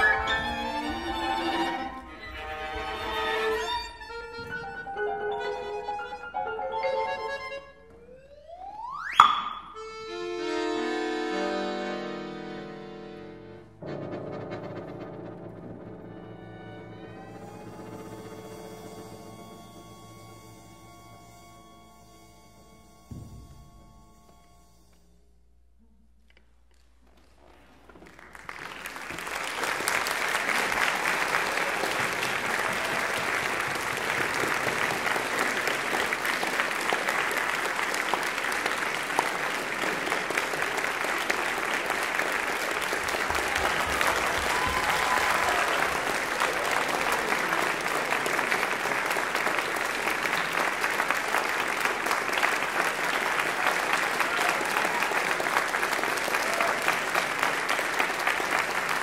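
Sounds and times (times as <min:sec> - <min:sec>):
audience applauding: 0:00.0 - 0:07.5, 0:17.0 - 0:21.0, 0:27.2 - 0:59.0.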